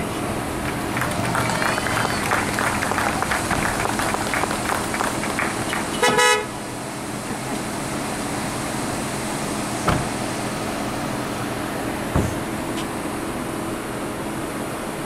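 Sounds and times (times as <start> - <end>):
cars idling in line: 0.0 - 15.0
car horn honk: 5.9 - 6.6.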